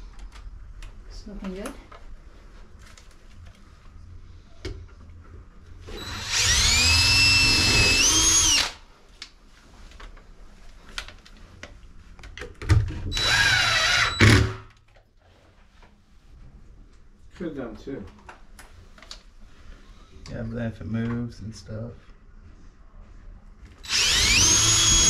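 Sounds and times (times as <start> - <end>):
power drill driving screws: 5.9 - 8.8, 13.1 - 14.6, 23.8 - 25.0.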